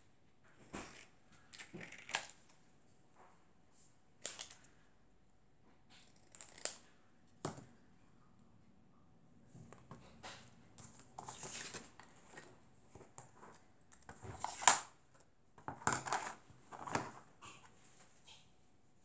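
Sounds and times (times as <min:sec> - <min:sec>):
paper rustling: 0:10.8 - 0:14.9.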